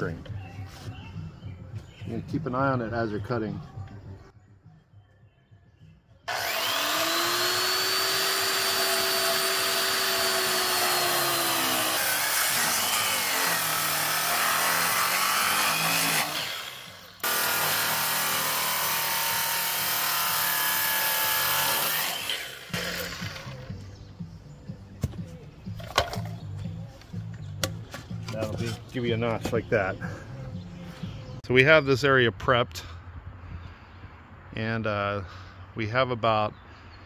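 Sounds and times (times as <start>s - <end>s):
circular saw cutting timber: 6.3s - 23.8s.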